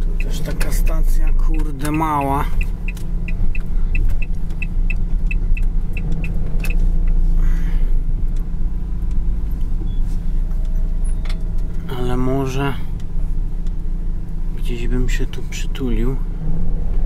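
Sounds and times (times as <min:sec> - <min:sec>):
engine and road rumble: 0:00.0 - 0:17.0
turn signal ticking: 0:00.0 - 0:17.0.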